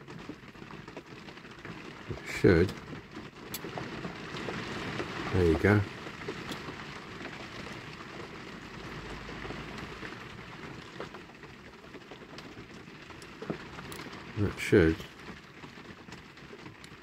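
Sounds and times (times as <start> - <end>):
heavy rain on a shed roof: 0.0 - 17.0.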